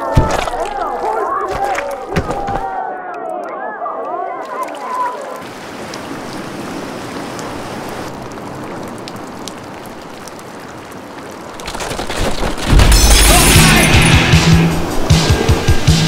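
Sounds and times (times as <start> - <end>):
steady rain: 4.4 - 16.0
rain drop ticks: 8.1 - 12.5.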